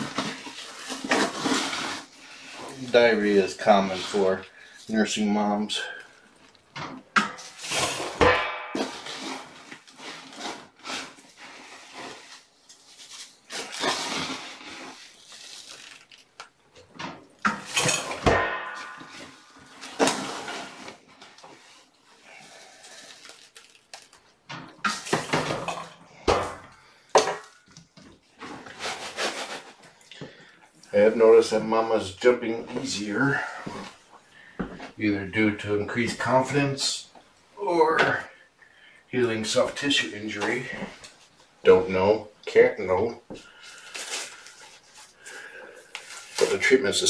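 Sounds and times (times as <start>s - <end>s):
cat litter scooping: 0.0s - 5.6s, 8.9s - 16.2s, 28.5s - 29.8s.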